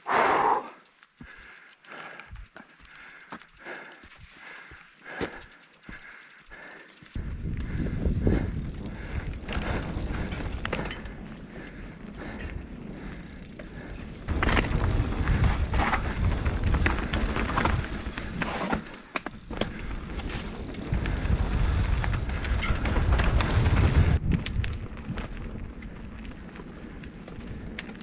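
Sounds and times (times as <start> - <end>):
bike tyres clattering over stones: 0.9 - 28.0
wind rumbling on microphone: 7.2 - 28.0.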